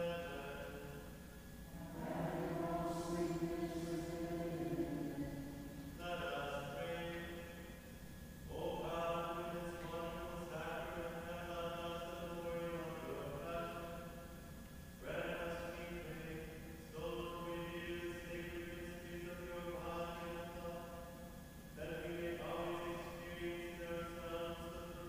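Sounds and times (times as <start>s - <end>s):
person singing slow chant: 1.7s - 7.6s.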